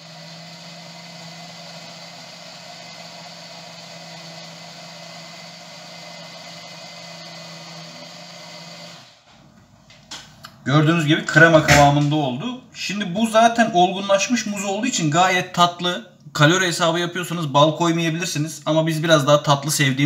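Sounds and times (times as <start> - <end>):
blender motor humming: 0.0 - 9.2.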